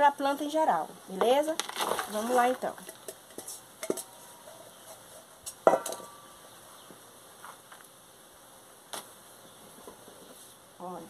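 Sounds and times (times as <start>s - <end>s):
metal bowl knocking: 2.8s - 4.2s, 5.5s - 6.3s.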